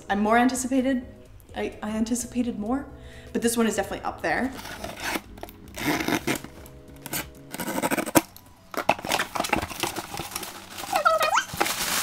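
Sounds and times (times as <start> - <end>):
knife slicing packing tape: 4.5 - 8.3
cardboard flaps rustling: 4.6 - 12.0.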